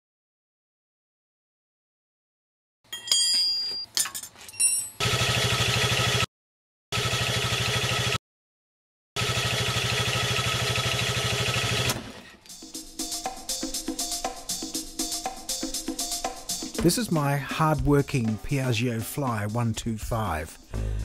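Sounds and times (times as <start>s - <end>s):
clinks and clicks: 2.9s - 5.0s
scooter engine running: 5.0s - 6.3s, 6.9s - 8.2s, 9.2s - 12.3s.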